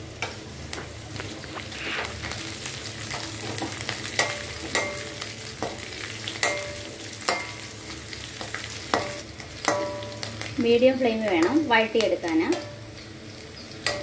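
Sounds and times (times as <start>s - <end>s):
food sizzling in hot oil: 0.0s - 14.0s
metal spoon scraping a pan: 1.5s - 2.4s.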